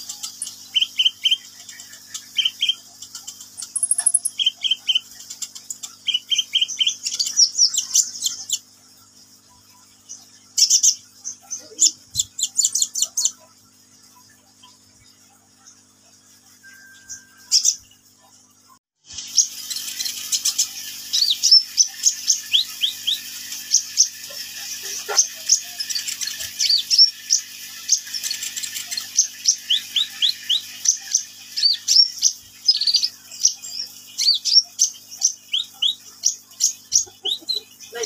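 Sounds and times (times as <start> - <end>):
bird singing high thin notes: 3.6 - 4.6.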